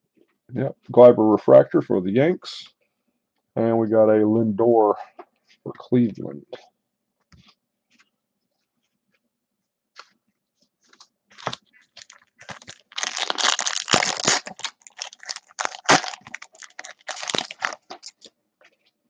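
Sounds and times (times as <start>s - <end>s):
foil wrapper tearing and crinkling: 11.4s - 18.3s.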